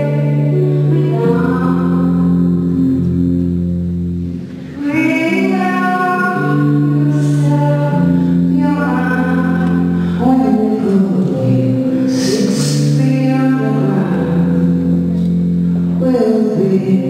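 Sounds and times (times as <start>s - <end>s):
woman singing slow song: 0.0s - 3.4s, 4.7s - 17.0s
long held accompanying chords: 0.0s - 17.0s.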